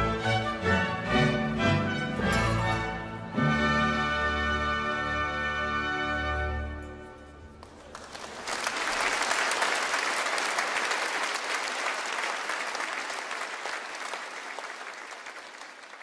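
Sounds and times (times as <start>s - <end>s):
audience applauding: 7.6s - 16.0s.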